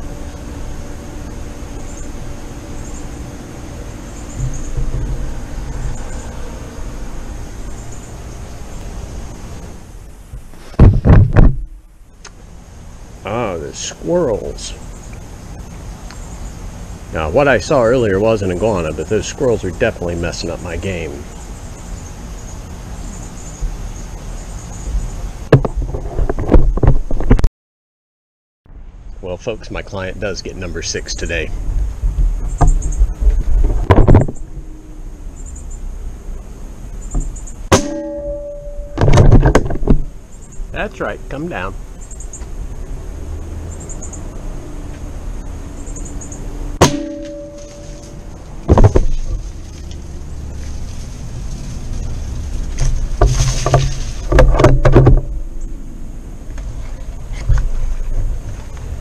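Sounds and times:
wind rumbling on microphone: 4.0 - 11.9, 24.8 - 27.5, 31.2 - 35.3
short ringing tone: 37.8 - 39.2, 47.0 - 48.3.

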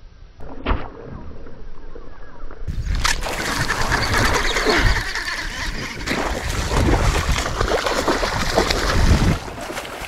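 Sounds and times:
wind rumble on microphone: 2.7 - 9.8.

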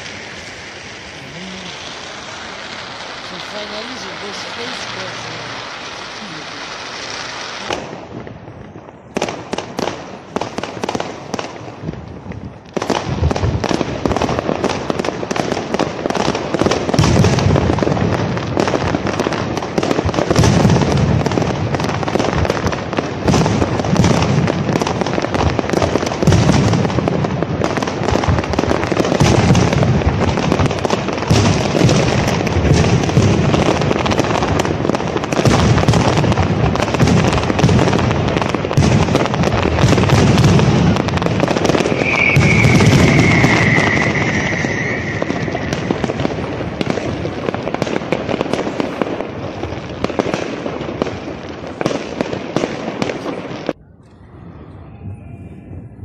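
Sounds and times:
fireworks crackling and popping: 0.0 - 54.4
deep booms of fireworks shells: 0.0 - 54.6.

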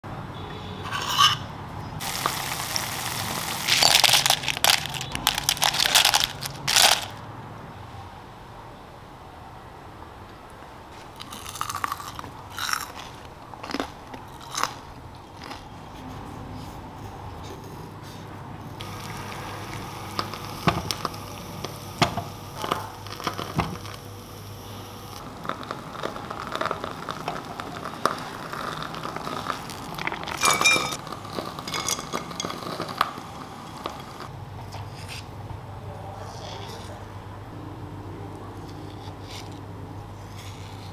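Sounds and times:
crunchy snacks being bitten: 3.6 - 7.2, 11.2 - 16.1.

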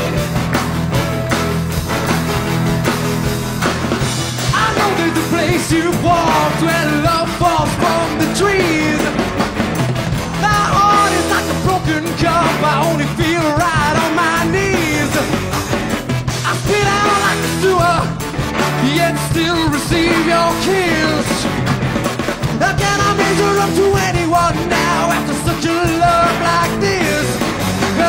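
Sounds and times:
drums: 0.0 - 28.0
electric guitars: 0.0 - 28.0
person singing: 4.5 - 9.5, 10.3 - 15.8, 16.4 - 21.6, 22.6 - 28.0.

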